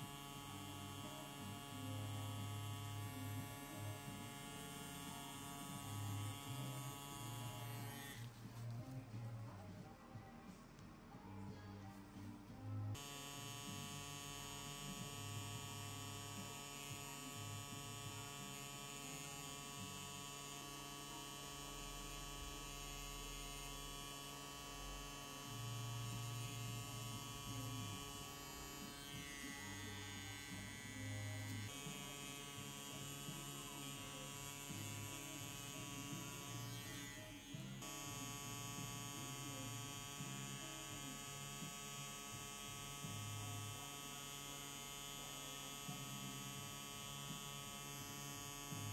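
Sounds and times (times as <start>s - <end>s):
tattoo machine humming: 0.0s - 9.0s, 12.9s - 48.9s.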